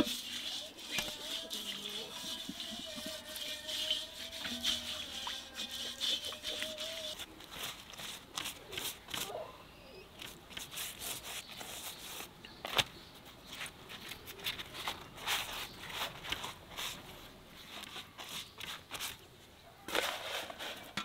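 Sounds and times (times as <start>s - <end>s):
flatbread crinkling and rustling: 10.2s - 21.0s.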